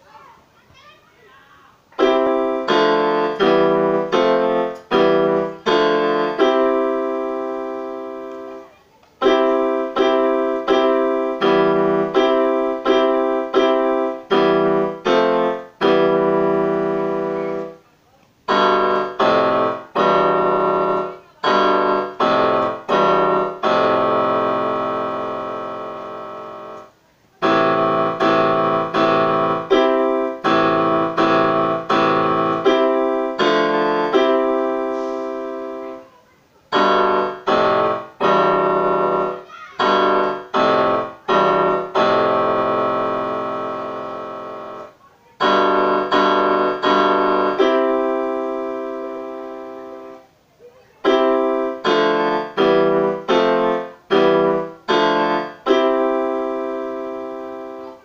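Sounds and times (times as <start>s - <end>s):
electric piano chords: 1.9s - 58.0s.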